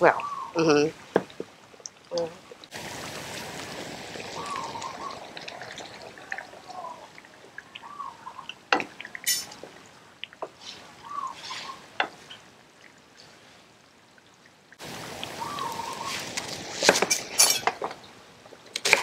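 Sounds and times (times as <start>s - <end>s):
liquid bubbling and sloshing in pot: 0.1s - 19.0s
kitchen utensils clinking: 9.3s - 9.6s, 16.8s - 17.9s.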